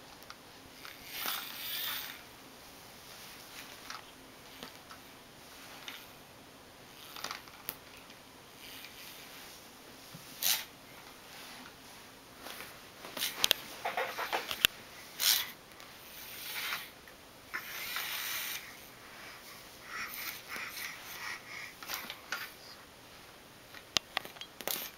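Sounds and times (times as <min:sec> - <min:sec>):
baby grunting and sniffing: 0:19.8 - 0:21.8.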